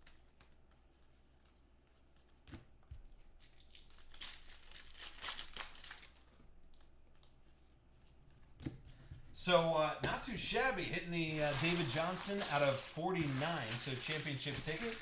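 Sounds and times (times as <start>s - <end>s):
foil wrapper crinkling and tearing: 3.2s - 6.8s, 11.3s - 15.0s.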